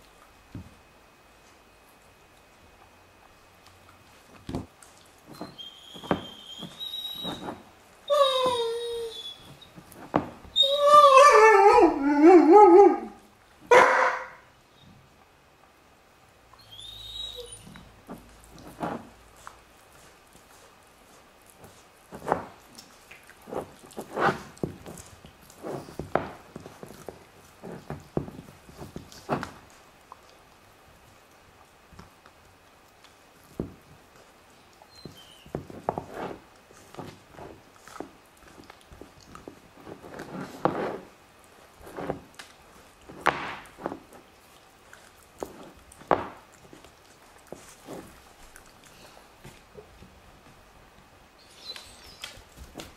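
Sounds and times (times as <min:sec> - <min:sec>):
dog chewing bone: 0:17.6 - 0:50.2.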